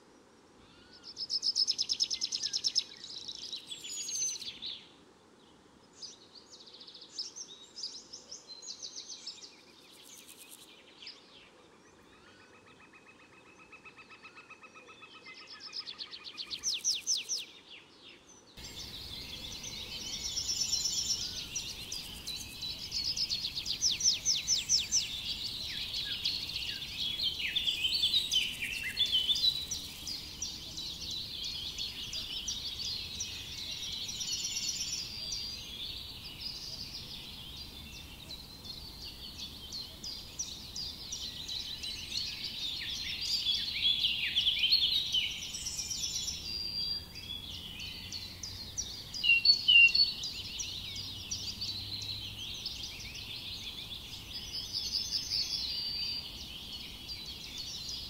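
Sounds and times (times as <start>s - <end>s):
songbirds chirping and trilling: 0.0s - 58.0s.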